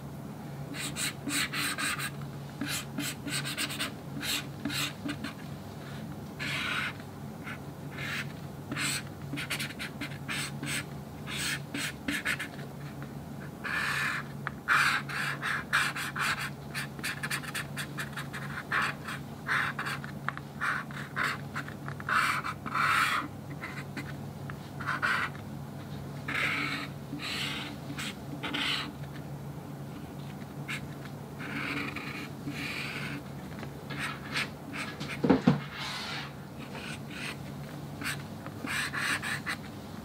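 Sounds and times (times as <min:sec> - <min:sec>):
low steady hum: 0:00.0 - 0:40.0
marker pen scratching on board: 0:00.8 - 0:05.4, 0:06.4 - 0:12.6, 0:13.6 - 0:24.2, 0:24.8 - 0:25.4, 0:26.3 - 0:29.2, 0:30.7 - 0:33.2, 0:33.9 - 0:35.6, 0:36.6 - 0:37.4, 0:38.0 - 0:39.7.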